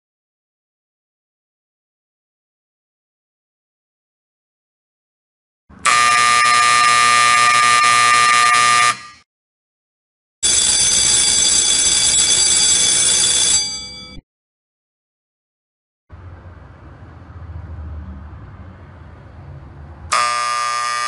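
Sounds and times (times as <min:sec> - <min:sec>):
electric alarm bell ringing: 0:05.8 - 0:09.2, 0:10.4 - 0:14.2, 0:20.1 - 0:21.0
electronic horn buzzing: 0:05.8 - 0:09.2, 0:20.1 - 0:21.0.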